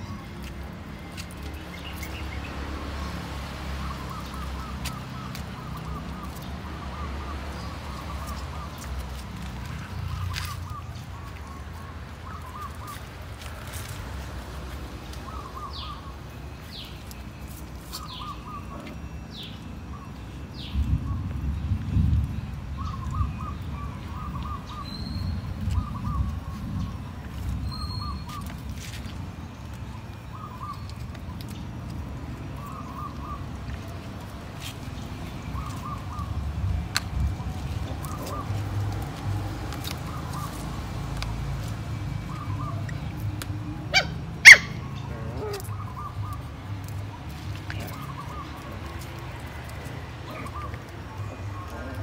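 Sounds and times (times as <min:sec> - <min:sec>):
bird calling: 0:03.8 - 0:13.1, 0:15.1 - 0:16.9, 0:17.9 - 0:19.2, 0:35.2 - 0:36.4, 0:37.4 - 0:39.0, 0:42.3 - 0:43.2, 0:43.9 - 0:49.4, 0:50.2 - 0:52.0
puppies growling: 0:43.9 - 0:45.8, 0:50.1 - 0:52.0.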